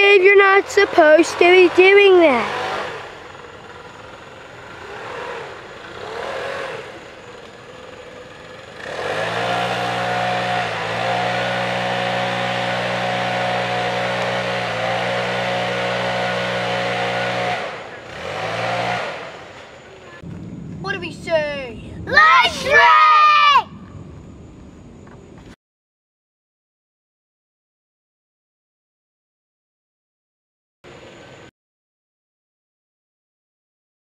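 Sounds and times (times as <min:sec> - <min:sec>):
small engine running: 0:00.0 - 0:20.2.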